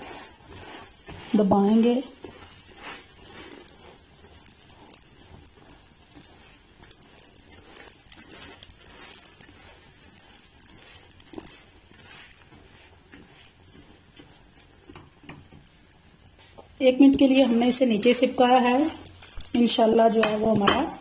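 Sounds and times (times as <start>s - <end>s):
egg sizzling in oil: 0.0s - 21.0s
spatula scraping pan: 0.0s - 21.0s.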